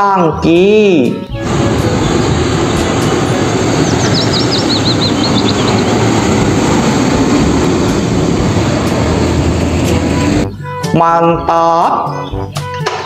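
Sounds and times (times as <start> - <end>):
truck engine and road noise: 1.0 - 11.0
high chirps: 1.1 - 7.1.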